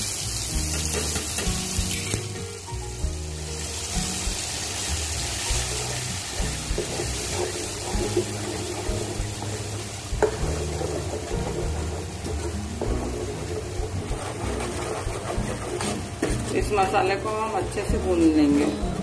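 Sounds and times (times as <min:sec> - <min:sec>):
paste sizzling in hot oil: 0:00.0 - 0:19.0
ladle knocking against pan: 0:00.7 - 0:02.2, 0:10.2 - 0:14.4
metal ladle stirring: 0:05.5 - 0:19.0.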